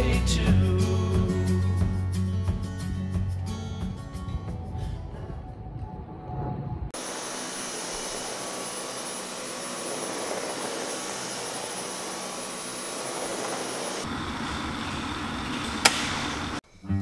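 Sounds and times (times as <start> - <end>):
vacuum cleaner running over rug: 7.0 - 16.6.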